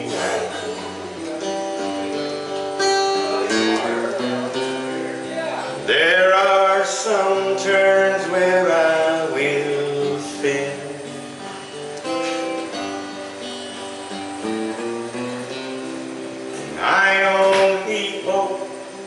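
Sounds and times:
acoustic guitar: 0.0 - 19.0
man singing long wavering notes: 5.8 - 11.2.

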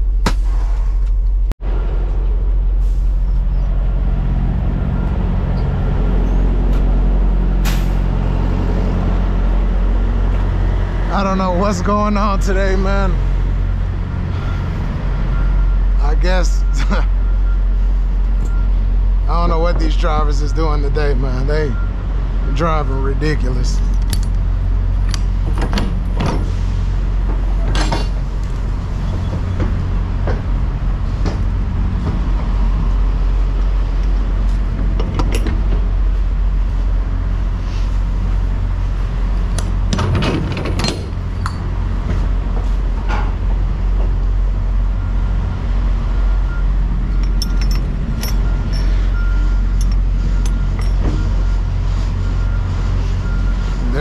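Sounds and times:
low engine rumble: 0.0 - 54.0
metal latches and hinges clanking: 23.9 - 24.4, 34.8 - 35.8, 39.6 - 41.6, 47.1 - 49.1, 49.7 - 51.2.

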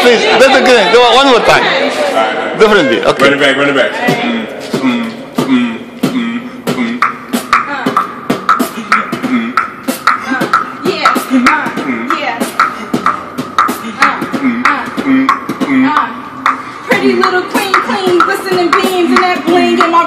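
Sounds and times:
beatboxing: 4.0 - 20.0.

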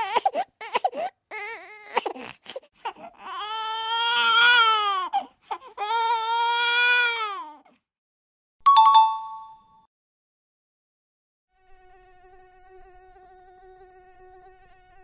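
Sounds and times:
baby crying: 0.0 - 7.8.

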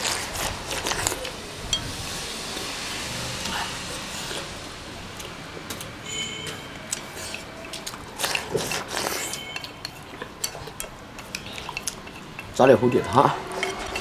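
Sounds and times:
slurping soup: 0.0 - 5.4, 6.1 - 12.6
chopsticks clicking on bowls: 6.4 - 12.7, 13.5 - 14.0.

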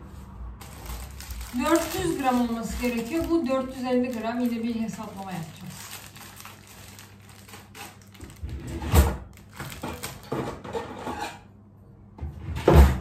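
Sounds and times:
kitchen items knocking and clattering: 8.3 - 11.2.

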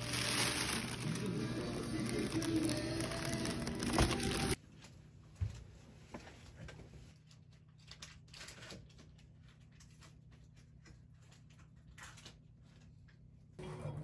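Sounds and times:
faint paper rustles and clicks: 1.9 - 5.0.

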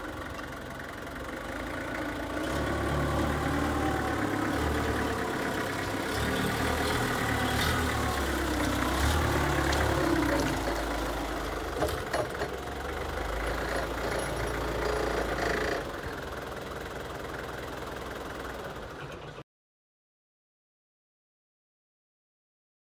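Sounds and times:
forklift diesel engine running: 0.0 - 19.4
clunks: 4.2 - 16.5.

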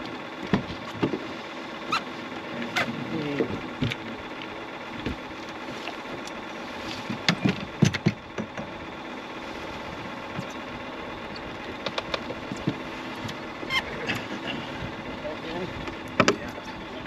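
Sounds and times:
boat motor hum: 0.0 - 17.0
gear clunking on metal hull: 7.1 - 8.8.

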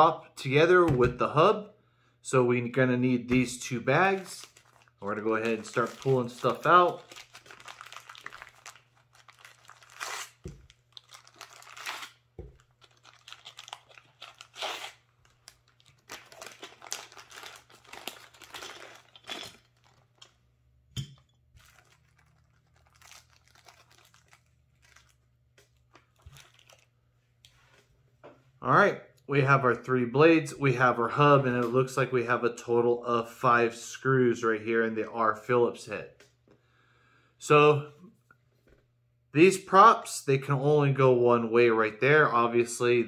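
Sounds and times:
plastic bags crinkling: 3.9 - 20.5, 21.5 - 27.0.

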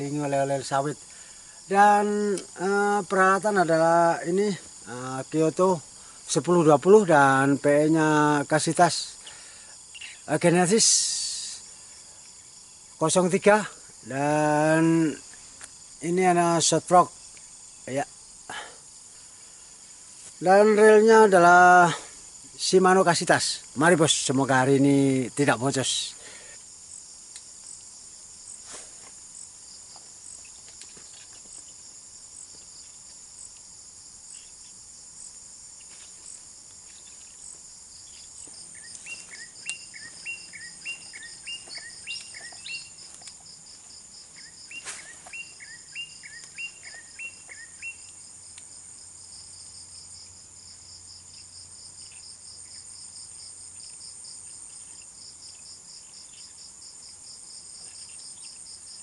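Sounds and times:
insects chorus: 0.0 - 59.0
animal chirps: 38.7 - 43.0, 44.4 - 48.2.

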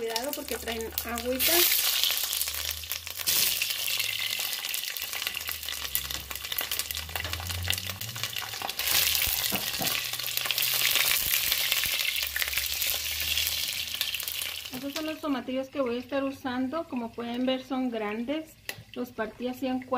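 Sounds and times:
peppers sizzling in hot oil: 0.0 - 19.9.

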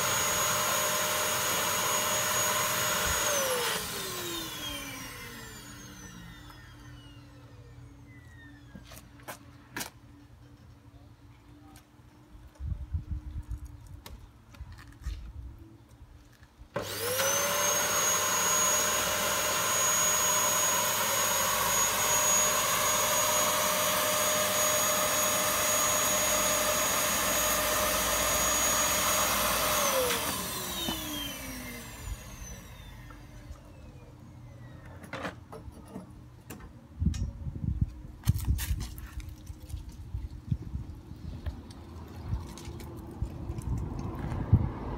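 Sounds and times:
vacuum cleaner whine: 0.0 - 9.2, 16.8 - 35.0.

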